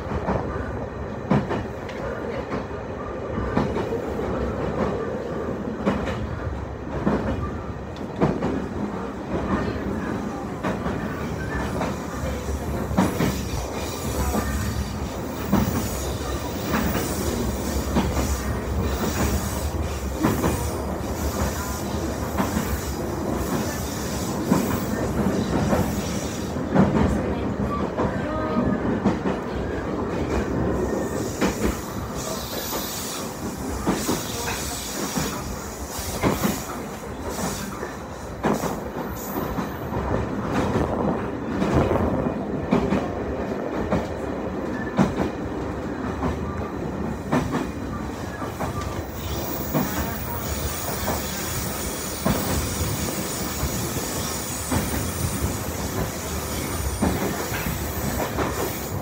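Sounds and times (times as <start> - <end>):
train wheels rumbling on rail: 0.0 - 59.0
train wheel clacks and knocks: 1.2 - 2.8, 5.7 - 8.7, 10.6 - 14.6, 15.4 - 28.2, 36.0 - 36.7, 38.4 - 47.8, 48.4 - 58.9.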